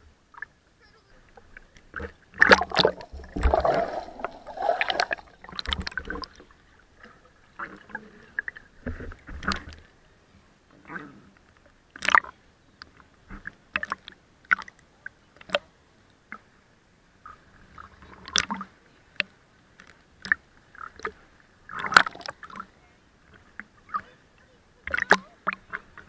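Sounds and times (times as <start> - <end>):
short water splashes: 0.3 - 9.9, 20.2 - 26.0
seawater sloshing and gurgling: 1.2 - 10.0, 20.2 - 26.0.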